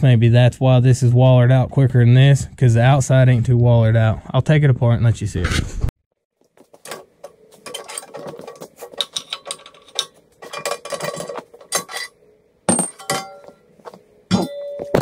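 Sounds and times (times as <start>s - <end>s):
sharp metallic clank: 9.2s - 13.7s.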